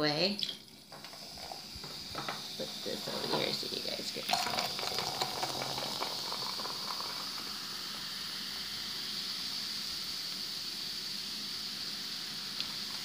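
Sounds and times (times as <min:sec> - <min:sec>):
fizzing hiss: 0:00.0 - 0:13.0
cola pouring into glass: 0:00.4 - 0:09.9.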